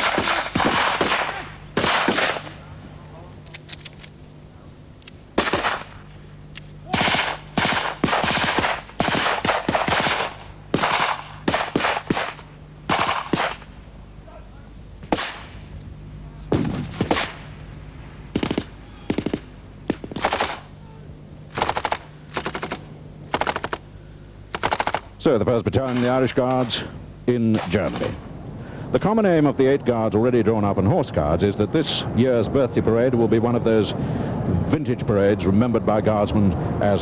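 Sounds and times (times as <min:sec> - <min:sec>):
rifle shots: 0:00.0 - 0:02.6, 0:05.4 - 0:06.0, 0:06.9 - 0:13.7, 0:15.1 - 0:15.6, 0:16.5 - 0:17.5, 0:18.3 - 0:20.7, 0:21.5 - 0:23.9, 0:24.5 - 0:25.1, 0:25.8 - 0:26.8, 0:27.5 - 0:28.2
machine gun bursts: 0:07.0 - 0:13.6, 0:18.4 - 0:20.6, 0:21.5 - 0:23.8, 0:24.5 - 0:25.1.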